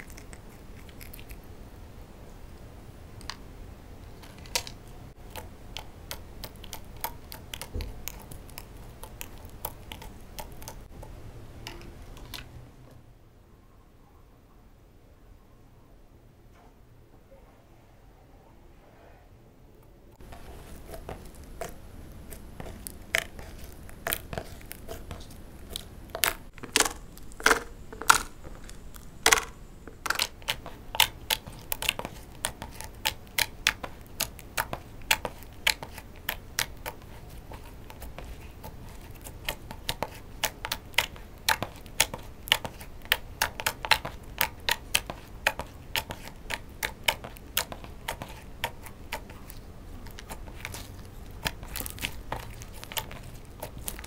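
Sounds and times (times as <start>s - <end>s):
slime clicking and popping: 4.5s - 10.9s, 20.7s - 54.0s.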